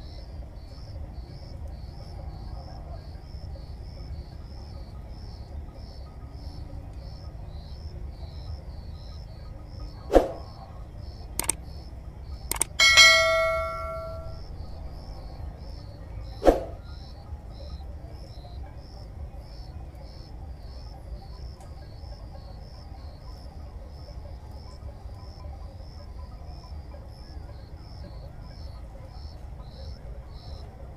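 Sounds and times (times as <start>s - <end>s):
insects chirping: 0.0s - 30.9s
low outdoor hum: 0.0s - 30.9s
sharp clicks: 11.4s - 11.6s, 12.5s - 14.3s
bell ding: 12.5s - 14.4s.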